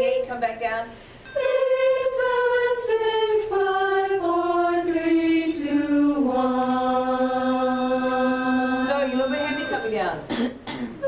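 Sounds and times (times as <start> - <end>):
chorus singing a descending scale: 1.3 - 10.0.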